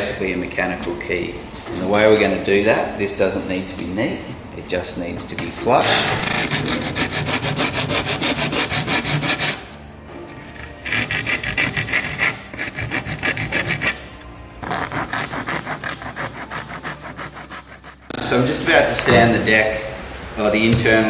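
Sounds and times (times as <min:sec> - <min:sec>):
hand rasp scraping wood: 0:06.1 - 0:09.7, 0:10.6 - 0:18.4.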